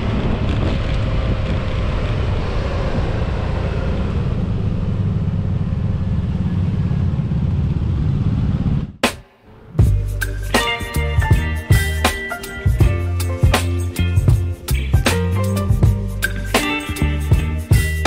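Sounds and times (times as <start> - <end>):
motorbike engine and road noise: 0.0 - 9.1.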